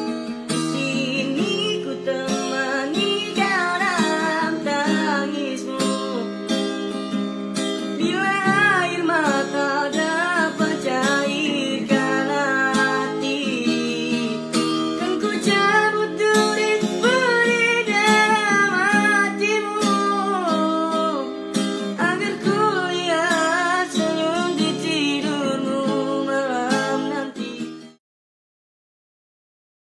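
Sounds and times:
acoustic guitar strumming: 0:00.0 - 0:28.0
young man singing: 0:00.6 - 0:06.5, 0:07.9 - 0:27.9.

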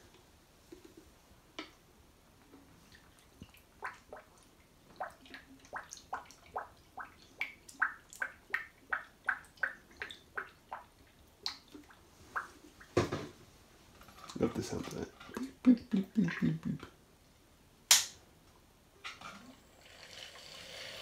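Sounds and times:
water gurgling in cooling loop: 0:02.8 - 0:12.9.

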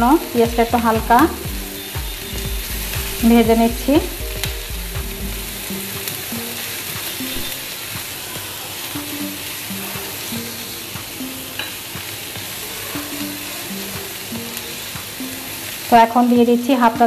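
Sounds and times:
onions sizzling in oil: 0:00.0 - 0:17.0.

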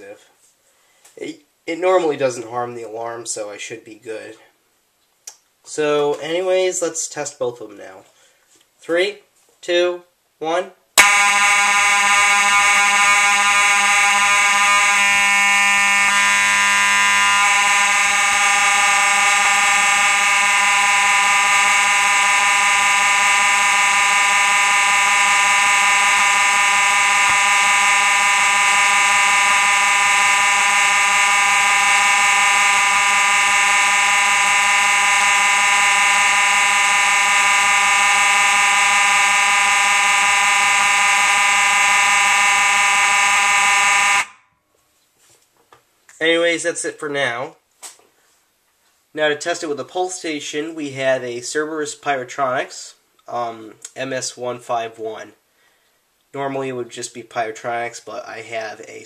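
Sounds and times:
fire alarm horns blaring: 0:11.0 - 0:44.5.

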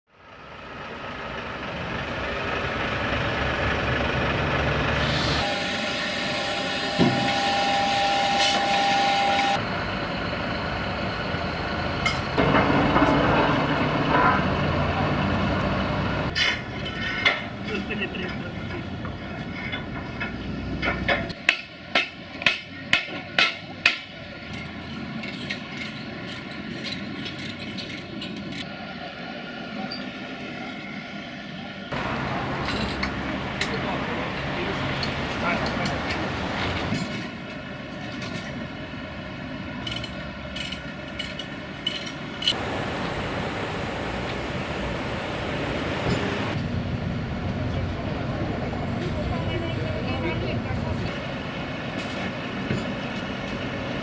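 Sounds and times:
machinery running: 0:00.8 - 0:16.4
workers' voices: 0:16.3 - 0:38.6, 0:47.5 - 0:53.6
sharp metal knocks: 0:20.2 - 0:28.1.

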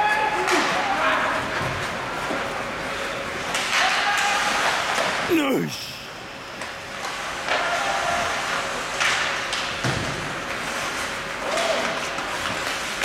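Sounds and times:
arena noise: 0:05.2 - 0:06.8
short shouts: 0:05.3 - 0:06.3.

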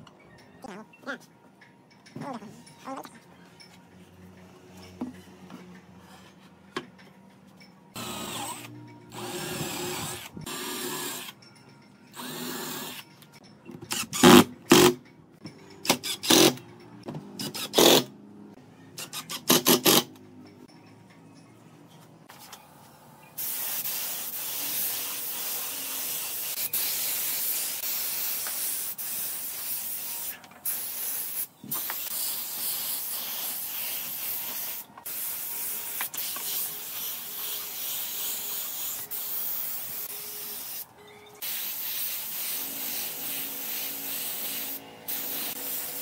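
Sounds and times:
compressed air hissing: 0:23.4 - 0:40.8, 0:41.4 - 0:46.0.

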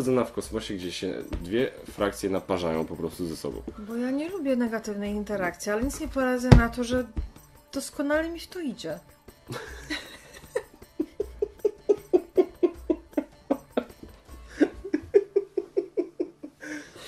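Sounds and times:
people laughing heartily: 0:09.5 - 0:17.0.

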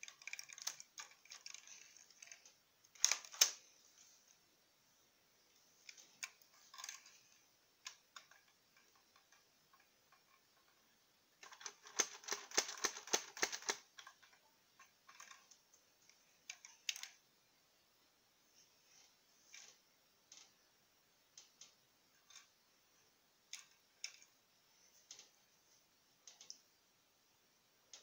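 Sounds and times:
plastic bricks clicking and rattling: 0:00.0 - 0:03.6, 0:05.9 - 0:10.8, 0:11.4 - 0:15.6.

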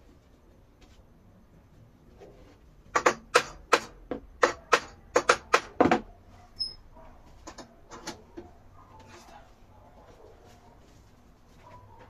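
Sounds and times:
sharp knocks on wooden frame: 0:02.9 - 0:06.1.

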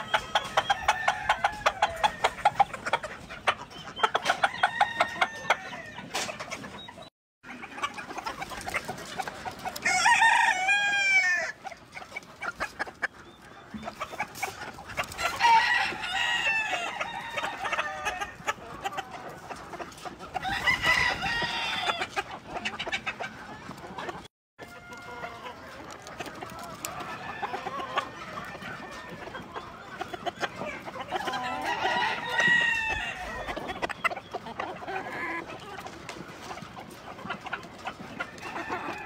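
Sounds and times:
chickens clucking: 0:00.0 - 0:39.0
rooster crowing: 0:09.8 - 0:11.6, 0:15.4 - 0:18.4, 0:20.4 - 0:22.0, 0:31.4 - 0:33.5.

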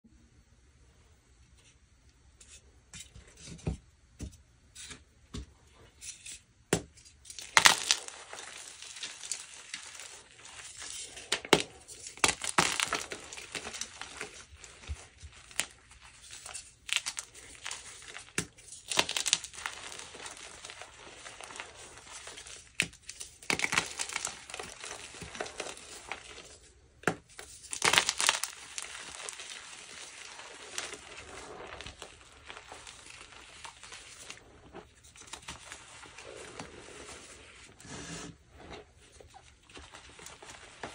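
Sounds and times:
chalk crushing and crumbling: 0:07.0 - 0:40.9.

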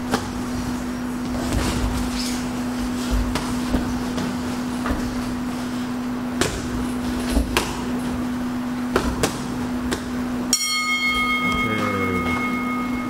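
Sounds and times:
steady low hum: 0:00.0 - 0:13.0
boxing gloves punching: 0:06.3 - 0:08.0
high ringing tone: 0:10.5 - 0:13.0.

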